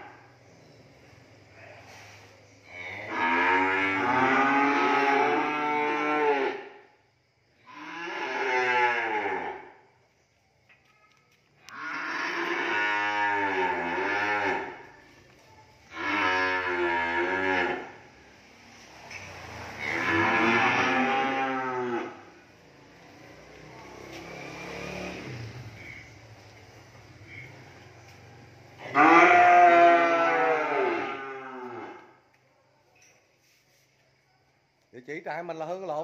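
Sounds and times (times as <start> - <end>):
cattle mooing: 2.9 - 6.6, 11.7 - 14.8, 15.9 - 18.0, 19.8 - 22.2, 28.9 - 32.0.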